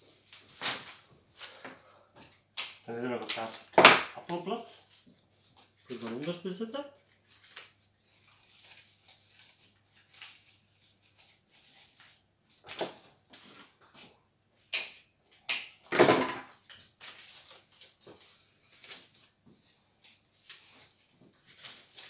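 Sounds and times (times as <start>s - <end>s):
stems snapping: 2.6s - 3.6s
leaves and stems rustling: 4.6s - 12.2s.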